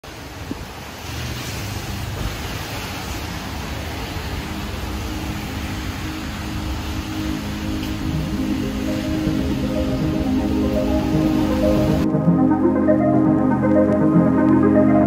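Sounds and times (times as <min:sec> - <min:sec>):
steady rushing noise: 0:00.0 - 0:15.0
soft held music notes: 0:04.6 - 0:15.0.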